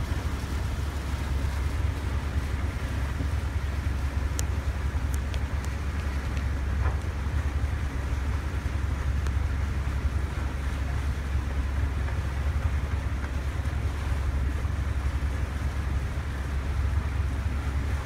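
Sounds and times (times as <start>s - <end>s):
boat engine rumble: 0.0s - 18.0s
water washing past: 0.0s - 18.0s.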